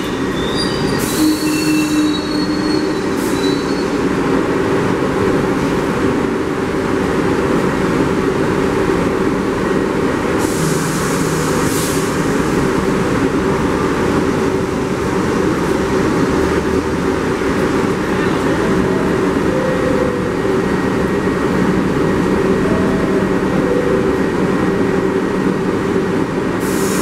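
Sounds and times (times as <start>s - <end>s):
subway train equipment humming: 0.0s - 27.0s
station noise: 17.3s - 26.6s.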